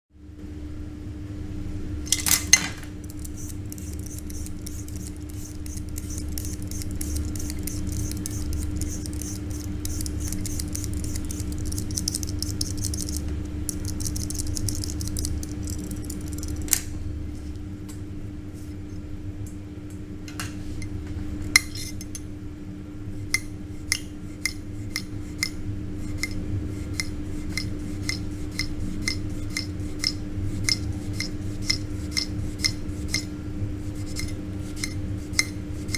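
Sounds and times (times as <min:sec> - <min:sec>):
steady low hum: 0:00.2 - 0:35.9
peeler scraping potato: 0:03.0 - 0:16.6, 0:21.6 - 0:22.1, 0:23.2 - 0:35.9.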